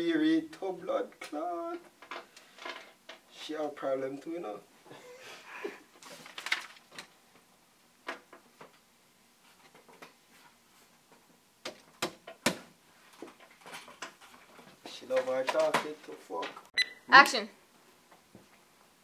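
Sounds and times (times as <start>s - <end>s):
paper pages rustling: 6.0s - 7.2s.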